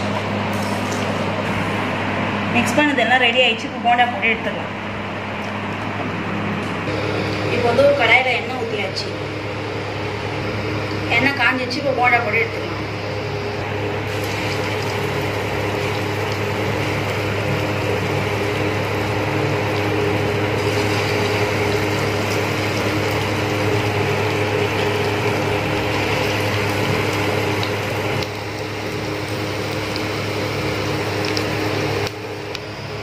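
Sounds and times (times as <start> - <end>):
low hum: 0.0 - 33.0
batter sizzling in hot oil: 13.1 - 33.0.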